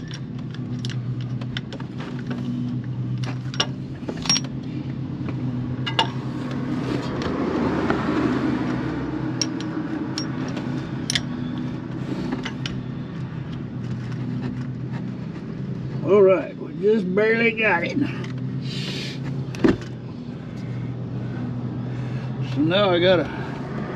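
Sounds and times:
wrench clinking on metal: 3.5s - 4.5s, 9.4s - 11.4s.

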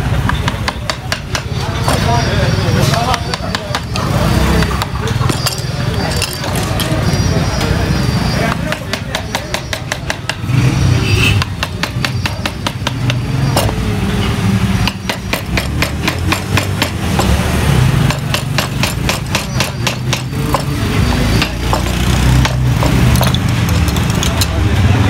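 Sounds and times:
mallet tapping a carving gouge: 0.3s - 2.0s, 2.9s - 5.4s, 8.4s - 10.5s, 11.3s - 13.8s, 14.8s - 24.6s.

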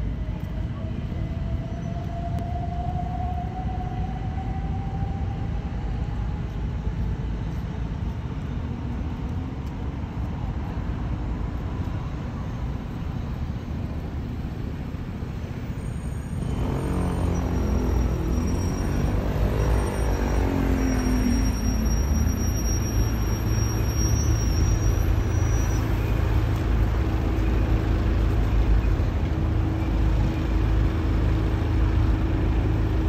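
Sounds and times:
jet engines rumbling overhead: 0.0s - 16.6s.

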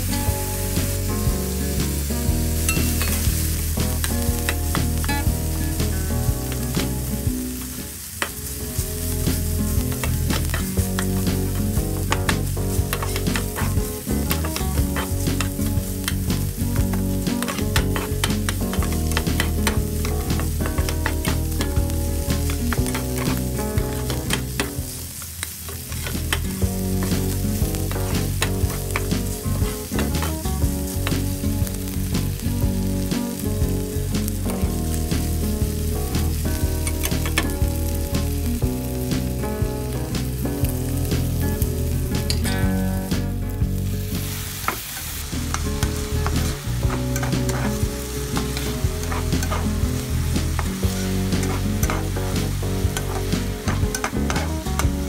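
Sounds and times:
meat and onions sizzling in a pan: 0.0s - 55.0s
spatula scraping a pan: 9.0s - 31.4s, 44.5s - 55.0s.

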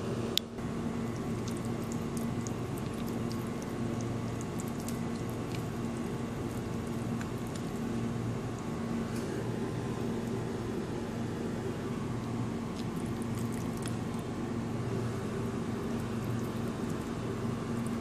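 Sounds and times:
steady low hum: 0.0s - 18.0s
spoon squishing thick paste: 1.0s - 8.7s, 12.2s - 14.4s.

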